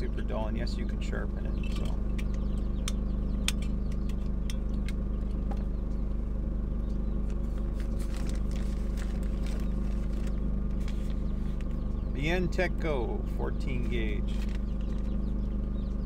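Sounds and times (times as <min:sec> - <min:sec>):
low machine hum: 0:00.0 - 0:16.0
tools clicking and tapping: 0:01.6 - 0:05.7
plastic bag handled: 0:07.5 - 0:11.6.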